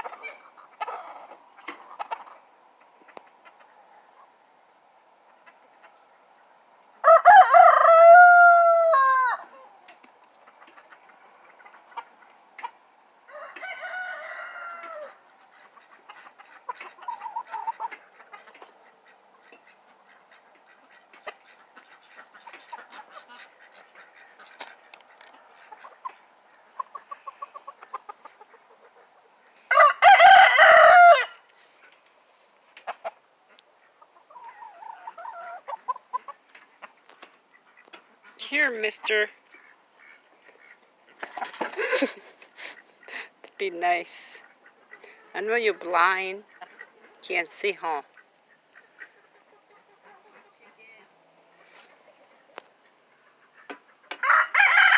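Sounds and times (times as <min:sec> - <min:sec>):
chickens clucking and scratching: 0:00.0 - 0:54.9
roosters crowing: 0:07.0 - 0:09.8, 0:13.2 - 0:15.5, 0:29.6 - 0:31.5, 0:54.1 - 0:54.9.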